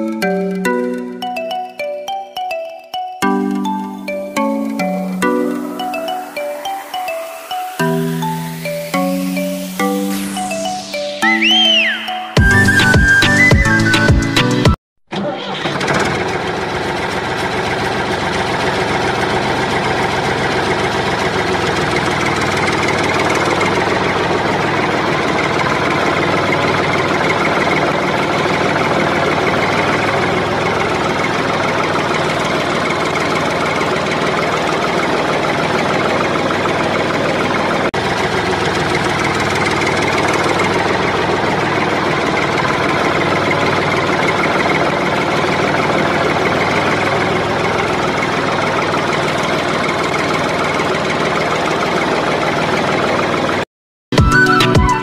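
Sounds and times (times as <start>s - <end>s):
engine running steadily: 15.2s - 53.6s.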